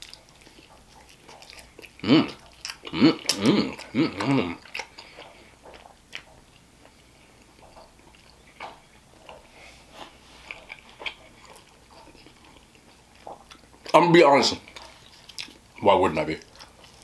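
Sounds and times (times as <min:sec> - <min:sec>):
wet chewing smacks: 0:00.0 - 0:17.0
person humming: 0:02.0 - 0:04.6.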